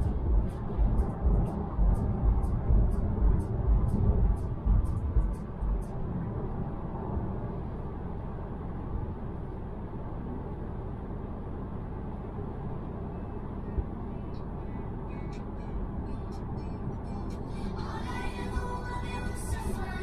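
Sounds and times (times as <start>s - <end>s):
tyre noise inside car cabin: 0.0s - 6.5s
wind noise: 0.0s - 16.2s.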